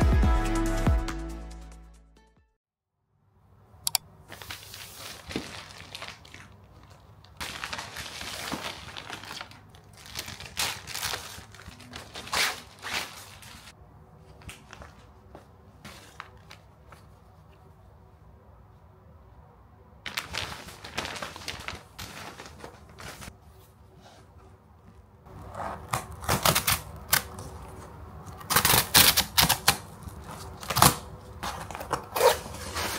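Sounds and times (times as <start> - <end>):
click: 3.8 - 4.0
plastic packaging crinkling: 4.3 - 13.7, 20.1 - 23.3.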